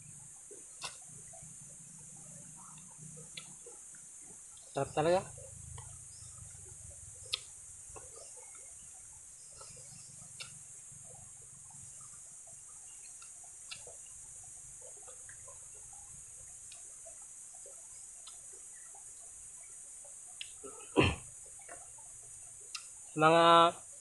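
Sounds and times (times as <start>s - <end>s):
high-pitched hiss: 0.0s - 24.0s
person chewing food: 13.0s - 14.0s.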